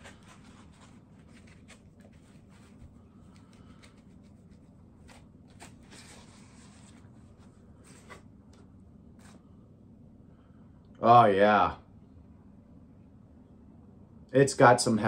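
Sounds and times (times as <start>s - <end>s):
styrofoam rustling and scraping: 0.0s - 2.8s.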